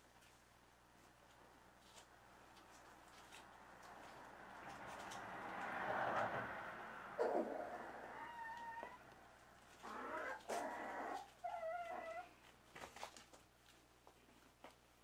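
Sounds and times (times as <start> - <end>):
puppies whimpering: 7.2 - 9.0, 9.8 - 12.3.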